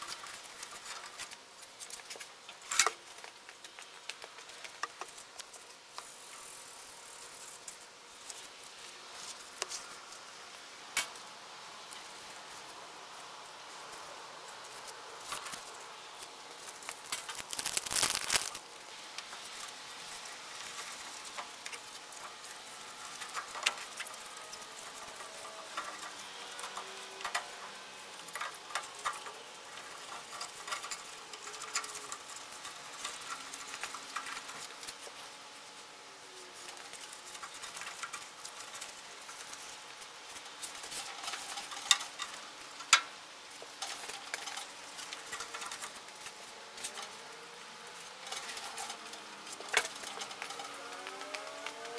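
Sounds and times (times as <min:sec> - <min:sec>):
hand tools clicking and scraping: 0:14.8 - 0:18.6, 0:48.0 - 0:51.9.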